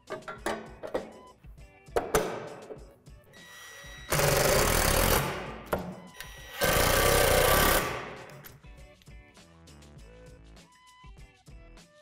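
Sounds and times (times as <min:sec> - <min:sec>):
cordless drill running: 0:03.4 - 0:05.5, 0:06.2 - 0:08.2.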